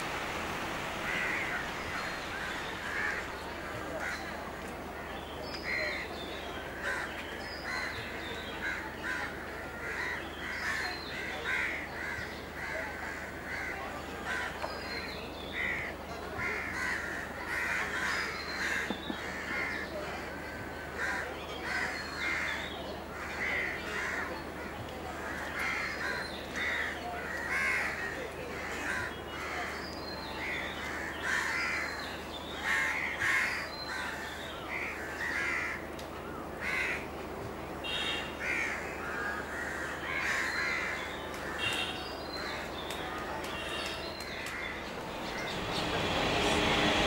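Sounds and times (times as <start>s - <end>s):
flock of birds calling: 0.0s - 4.7s, 5.4s - 37.0s, 37.8s - 47.0s
steady low hum: 44.4s - 47.0s.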